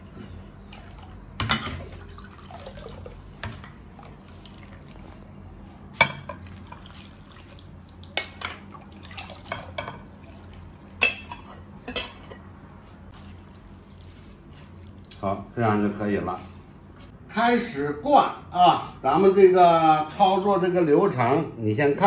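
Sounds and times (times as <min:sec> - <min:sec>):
liquid being poured: 0:00.0 - 0:12.3, 0:13.1 - 0:17.1
metal ladle clinking on glass: 0:11.0 - 0:12.4.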